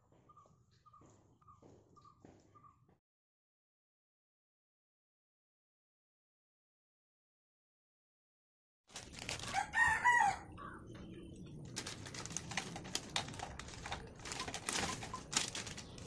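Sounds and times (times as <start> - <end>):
rooster crowing: 9.4 - 10.8
firecrackers clattering into glass box: 11.8 - 16.0.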